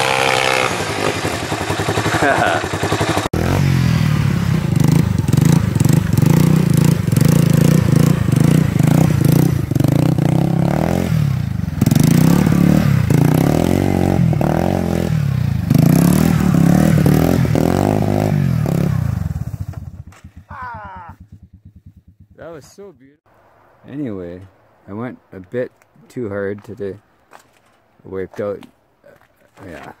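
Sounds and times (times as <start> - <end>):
atv engine revving: 0.0 - 22.7.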